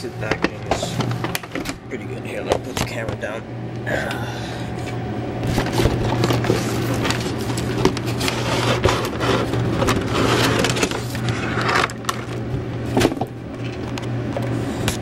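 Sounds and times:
steady low hum: 0.0 - 15.0
cardboard and plastic rustling: 5.4 - 15.0.

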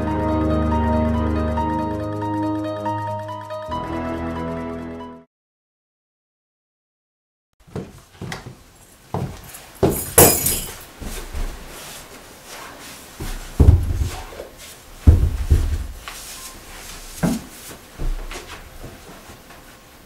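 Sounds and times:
objects dropped on floor: 9.2 - 11.4.

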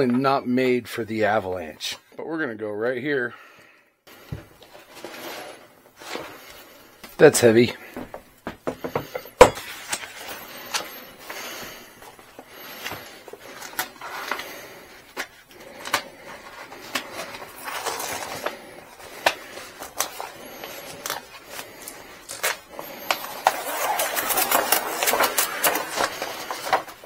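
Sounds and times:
vinyl sheet rustling and crinkling: 4.5 - 7.7, 9.6 - 27.0.

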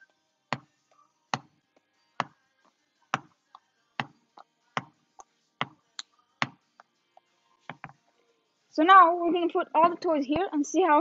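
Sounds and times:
ball bouncing on hardwood floor: 7.7 - 8.0.

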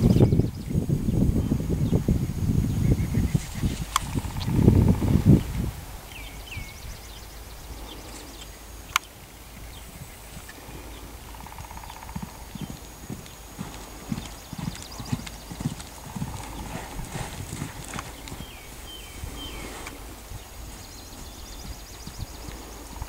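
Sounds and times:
hooves thudding on sand: 7.8 - 23.0.

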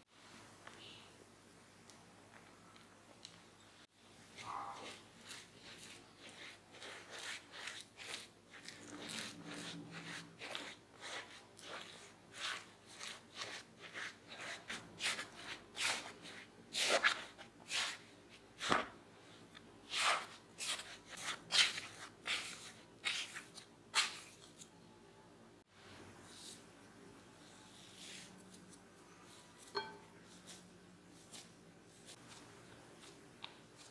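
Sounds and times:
spatula stirring mashed potatoes: 4.0 - 24.6.

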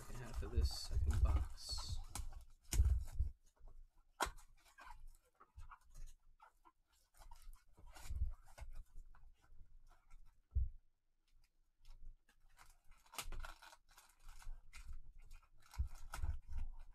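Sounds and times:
cardboard box rustling: 0.0 - 3.6.

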